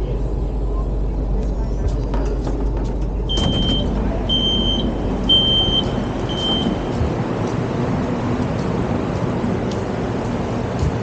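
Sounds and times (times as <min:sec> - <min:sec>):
low rumble of train: 0:00.0 - 0:11.0
train door warning beeps: 0:03.3 - 0:07.0.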